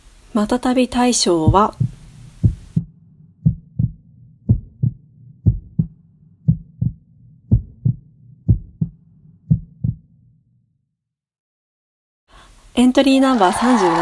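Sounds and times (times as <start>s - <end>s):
low steady hum: 0.0s - 8.9s
heartbeat thumps: 1.4s - 10.1s.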